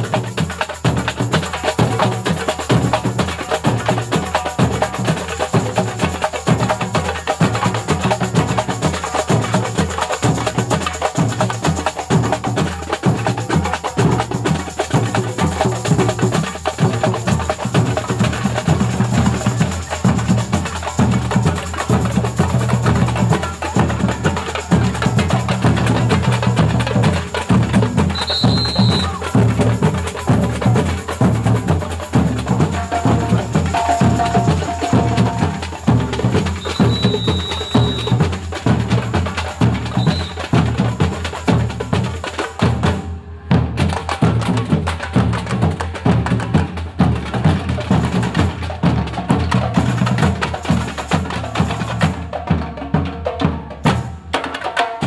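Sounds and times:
hand percussion: 0:00.0 - 0:55.0
samba drum band: 0:00.0 - 0:55.0
bass drums struck with mallets: 0:28.8 - 0:37.3.

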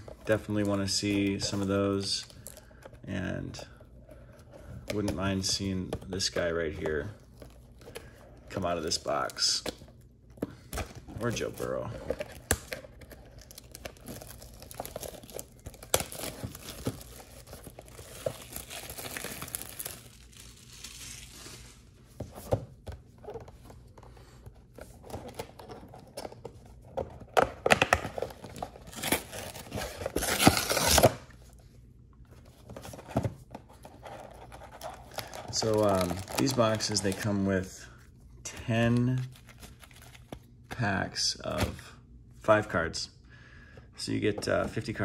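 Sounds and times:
shrink wrap tearing and crinkling: 0:11.2 - 0:22.0, 0:27.8 - 0:31.3, 0:34.0 - 0:37.4
cardboard box tearing: 0:28.2 - 0:31.2, 0:34.4 - 0:36.5.

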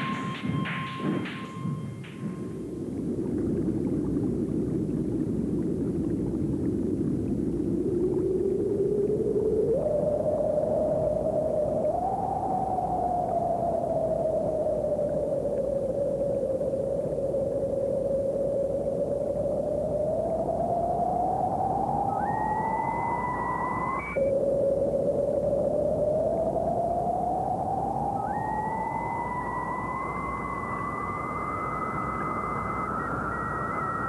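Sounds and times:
higher electronic tone: 0:00.0 - 0:02.8, 0:28.2 - 0:34.0
low wavering electronic tone: 0:00.0 - 0:04.1, 0:07.9 - 0:34.0
steady hiss: 0:00.0 - 0:06.0, 0:09.7 - 0:34.0.

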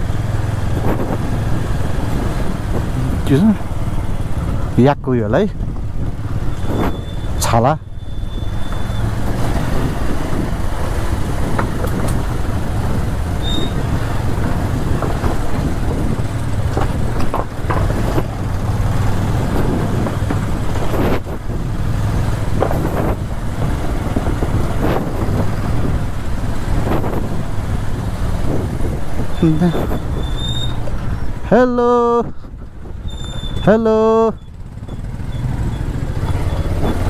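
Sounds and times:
motorcycle engine running: 0:00.0 - 0:31.7, 0:32.3 - 0:37.0
knocks from the road: 0:14.8 - 0:18.5.

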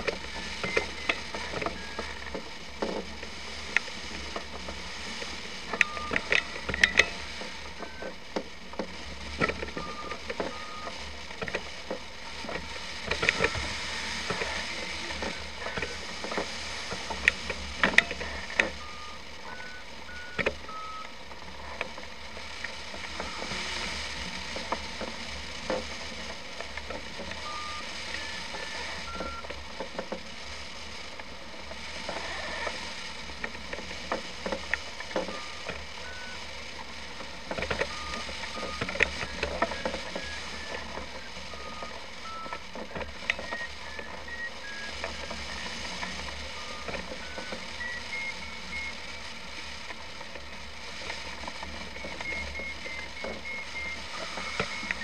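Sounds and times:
variometer beeping: 0:00.0 - 0:02.4, 0:05.6 - 0:08.2, 0:09.4 - 0:11.6, 0:13.1 - 0:21.1, 0:23.1 - 0:24.0, 0:27.2 - 0:29.6, 0:34.1 - 0:50.0, 0:51.3 - 0:55.0.

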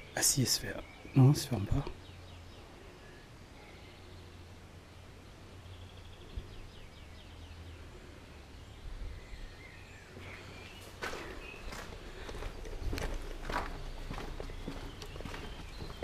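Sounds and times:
birds chirping: 0:00.0 - 0:16.0
steady low rumble: 0:01.8 - 0:16.0
footsteps on concrete: 0:10.7 - 0:16.0.

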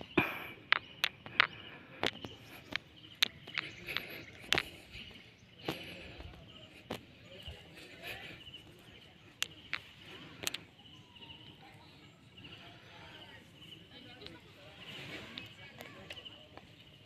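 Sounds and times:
sharp clicks and taps: 0:00.2 - 0:06.0.

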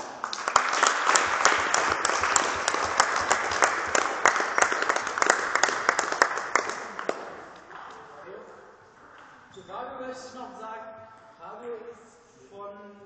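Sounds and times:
group of people applauding: 0:00.0 - 0:07.6.

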